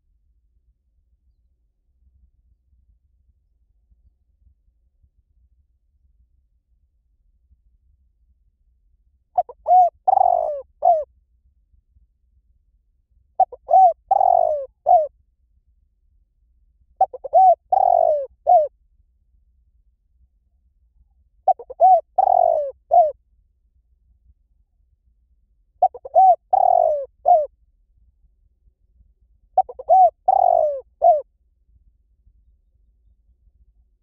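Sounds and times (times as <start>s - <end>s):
dove cooing: 9.4s - 11.0s, 13.4s - 15.1s, 17.0s - 18.7s, 21.5s - 23.1s, 25.8s - 27.5s, 29.6s - 31.2s.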